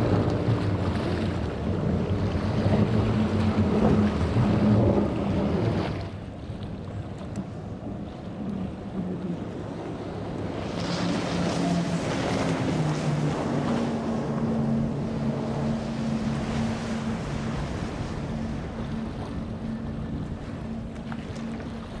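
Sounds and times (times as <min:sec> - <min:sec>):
boat engines droning: 0:00.0 - 0:22.0
hull spray and wake rushing: 0:00.0 - 0:22.0
wind on microphone: 0:00.0 - 0:22.0.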